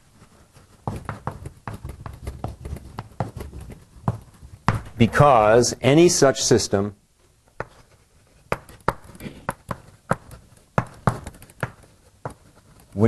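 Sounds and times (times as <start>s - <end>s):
chalk tapping on blackboard: 0.9s - 4.9s, 7.6s - 13.0s.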